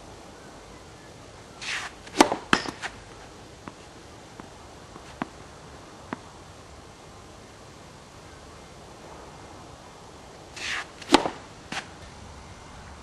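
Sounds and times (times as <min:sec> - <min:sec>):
tennis ball hits: 0:01.6 - 0:03.0, 0:03.6 - 0:05.4, 0:10.6 - 0:12.1.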